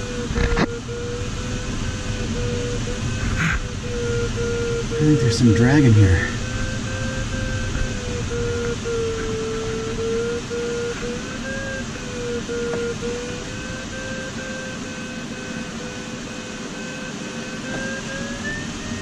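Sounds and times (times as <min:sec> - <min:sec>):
rush of air past canopy: 0:00.0 - 0:17.7
variometer pulsing beeps: 0:02.4 - 0:11.5.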